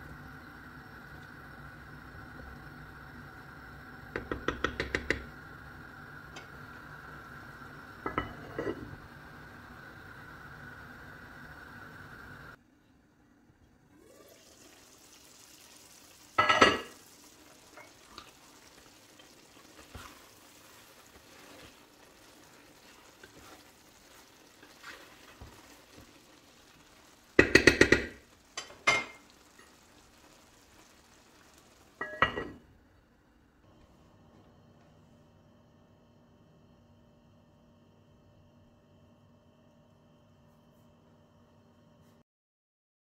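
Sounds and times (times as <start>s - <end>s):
pilaf sizzling in a pot: 0.0s - 12.6s, 13.6s - 42.2s
wooden spoon stirring: 16.9s - 29.7s
pot and lid clattering: 32.0s - 32.6s.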